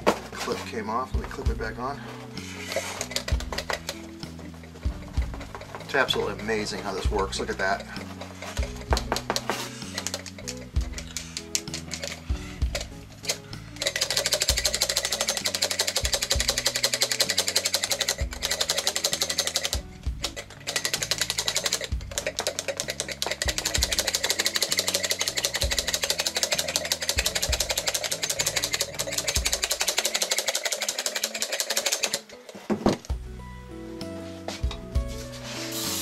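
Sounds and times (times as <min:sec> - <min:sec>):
background music: 0:00.0 - 0:36.0.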